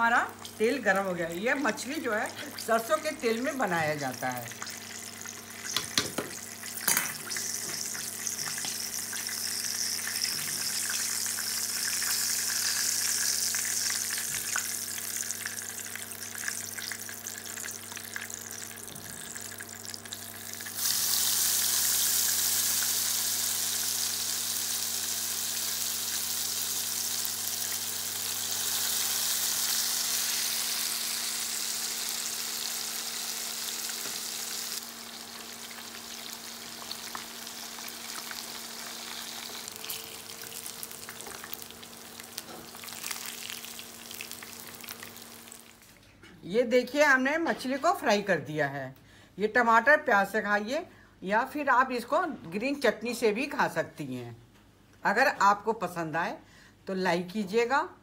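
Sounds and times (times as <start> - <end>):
fish sizzling in hot oil: 1.7 - 45.8
faint steady hum: 48.7 - 49.5.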